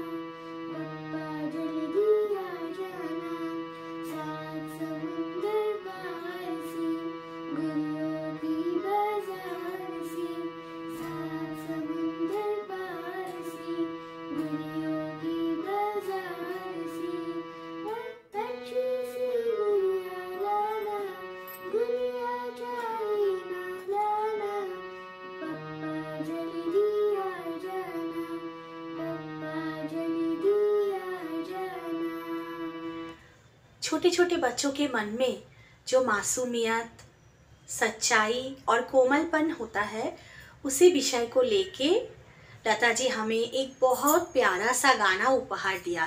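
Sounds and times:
girl singing: 0:00.0 - 0:33.2.

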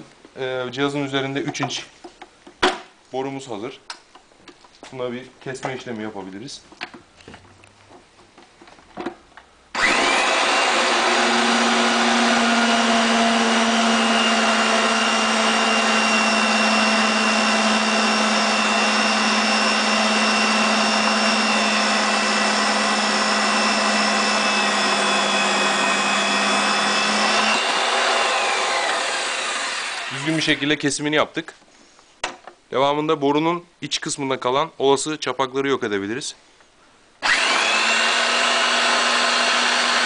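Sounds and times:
pipe threading machine whining: 0:09.8 - 0:30.5, 0:37.2 - 0:40.0.

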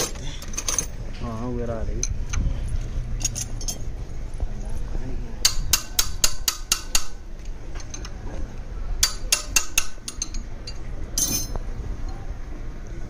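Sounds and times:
metal parts clinking: 0:00.0 - 0:01.2, 0:03.1 - 0:03.9, 0:07.4 - 0:08.2, 0:09.0 - 0:11.6
steady low hum: 0:00.0 - 0:13.0.

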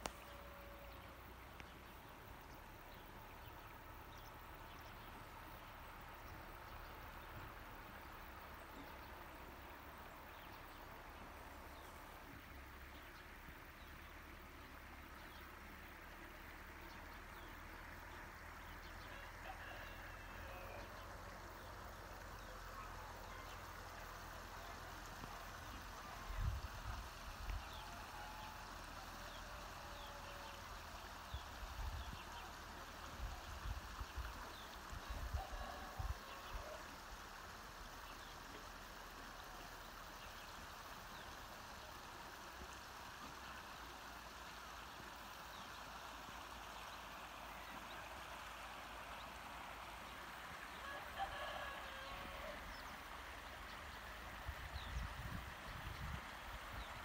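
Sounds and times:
running water: 0:00.0 - 0:57.0
steady outdoor hiss: 0:00.0 - 0:57.0
faint rooster crowing: 0:18.8 - 0:24.0, 0:27.5 - 0:31.2, 0:35.0 - 0:37.0, 0:50.7 - 0:53.1.

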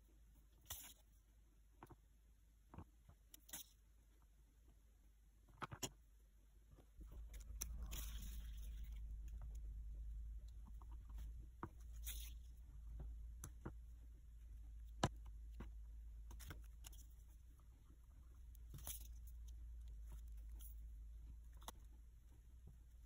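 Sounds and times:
fingers handling modelling clay: 0:06.7 - 0:23.0.

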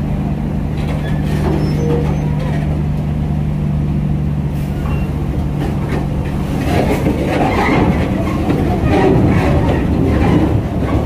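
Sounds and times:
diesel truck engine running: 0:00.0 - 0:11.0
clanking and rattling knocks: 0:04.8 - 0:11.0.

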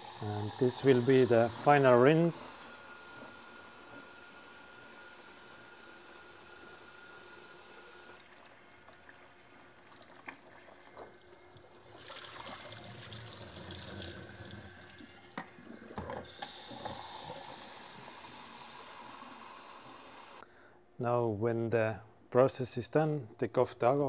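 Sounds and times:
tap water running into tank: 0:08.0 - 0:20.4
water poured into steel sink: 0:08.2 - 0:15.4.

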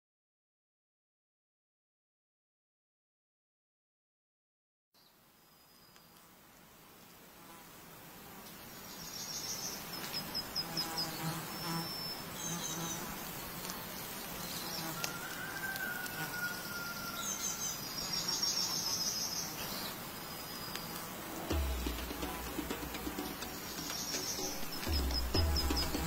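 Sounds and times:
insects chirping: 0:08.4 - 0:26.0.

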